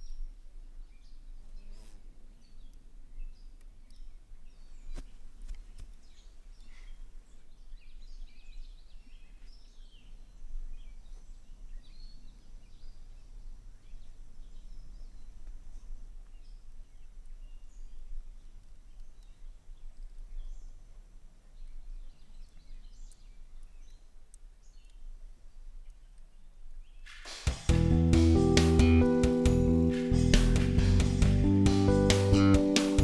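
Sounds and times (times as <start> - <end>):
faint clicks: 18.4 - 21.0, 22.3 - 27.3
steady low rumble: 27.5 - 32.7.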